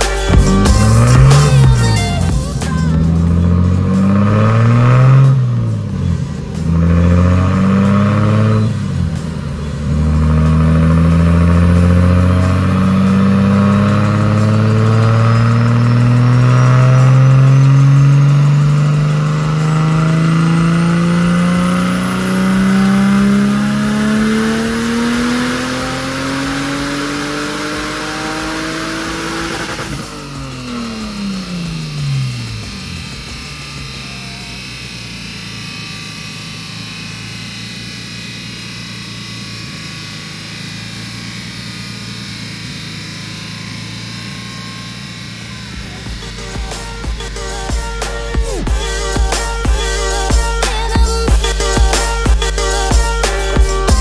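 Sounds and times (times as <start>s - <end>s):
car engine revving on dynamometer: 0.0s - 54.0s
faint high turbo whistle: 29.5s - 54.0s.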